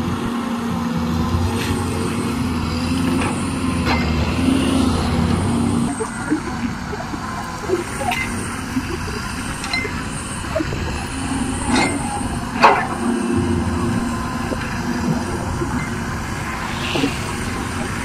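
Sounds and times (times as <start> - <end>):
excavator diesel engine running: 0.0 - 18.0.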